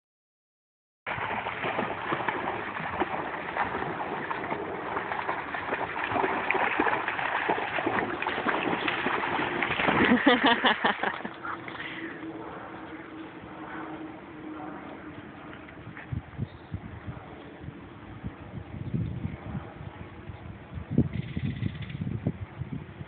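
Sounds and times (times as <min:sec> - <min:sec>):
water washing: 0:01.1 - 0:11.9
dogs splashing through water: 0:01.1 - 0:12.2.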